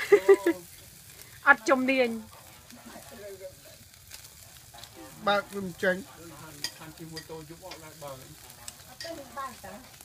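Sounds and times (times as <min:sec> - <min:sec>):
meat sizzling on charcoal grill: 0:00.0 - 0:10.0
sharp pops from grill: 0:00.0 - 0:10.0.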